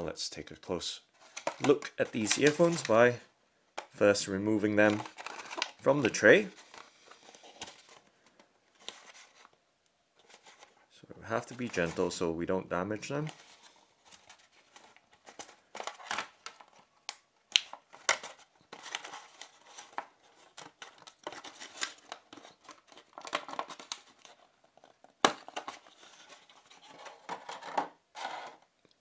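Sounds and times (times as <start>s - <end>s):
plastic packaging scraping and crinkling: 1.2s - 3.2s, 4.7s - 9.6s, 17.9s - 28.7s.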